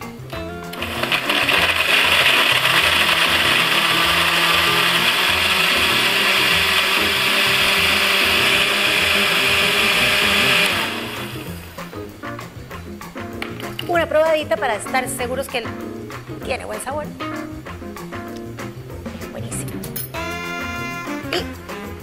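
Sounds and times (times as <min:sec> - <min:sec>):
blender whirring: 0:00.5 - 0:11.9.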